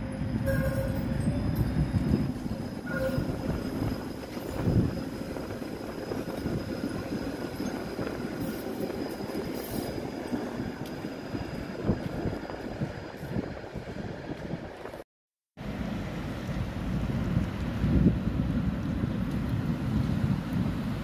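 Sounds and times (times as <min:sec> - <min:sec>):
tram wheels rumbling on rails: 0:00.0 - 0:15.0, 0:15.6 - 0:21.0
wheel squeal: 0:00.1 - 0:12.0.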